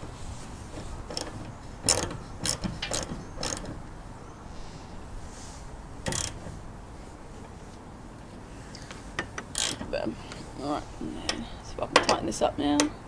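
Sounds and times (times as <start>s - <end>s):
socket ratchet clicking: 1.1s - 3.8s, 6.0s - 6.5s, 9.2s - 9.9s.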